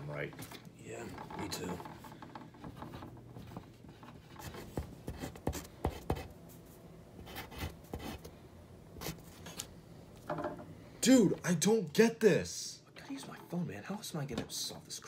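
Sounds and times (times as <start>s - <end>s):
pencil writing on paper: 2.8s - 6.3s, 7.2s - 8.2s.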